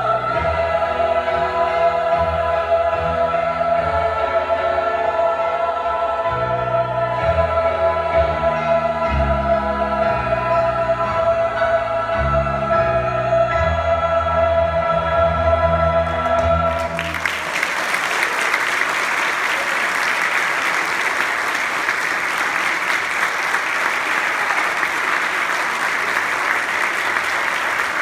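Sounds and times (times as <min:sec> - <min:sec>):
piano accompaniment: 0:00.0 - 0:17.7
children's choir singing: 0:00.0 - 0:28.0
audience applause: 0:16.7 - 0:28.0.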